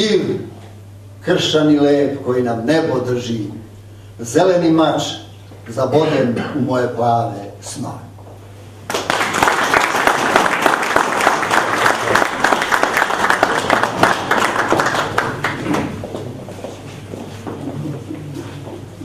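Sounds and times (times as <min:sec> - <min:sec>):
audience applauding: 0:08.9 - 0:16.4.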